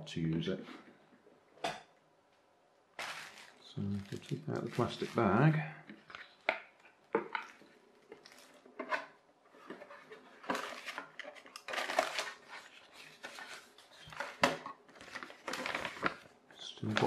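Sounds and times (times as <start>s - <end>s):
plastic bag and paper rustling: 3.0s - 6.4s, 7.4s - 8.7s, 9.6s - 17.0s.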